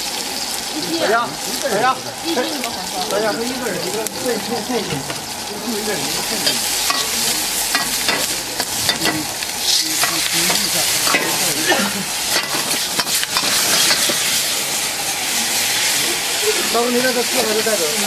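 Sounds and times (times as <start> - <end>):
food sizzling in wok: 0.0 - 18.0
metal ladle scraping wok: 6.1 - 15.0.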